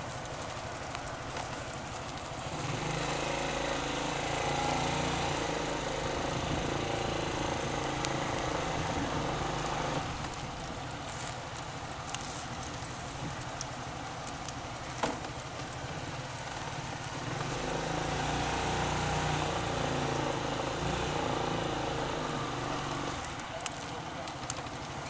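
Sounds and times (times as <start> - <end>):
motorcycle engine running: 0.0 - 25.0.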